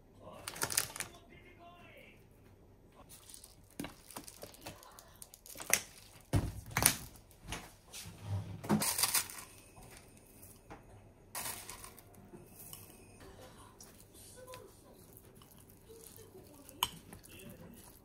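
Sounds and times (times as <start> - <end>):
plastic bag crinkling: 0.4 - 1.2, 3.0 - 7.4, 8.8 - 10.4, 11.4 - 12.2.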